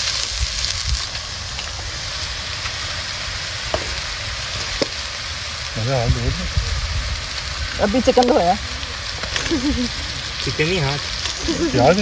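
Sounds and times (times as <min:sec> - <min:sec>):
paste sizzling in hot oil: 0:00.0 - 0:12.0.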